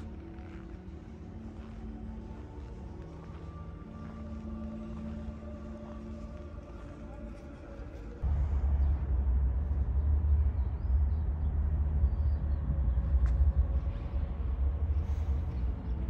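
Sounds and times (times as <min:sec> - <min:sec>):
fluttering low rumble: 0:08.1 - 0:16.0.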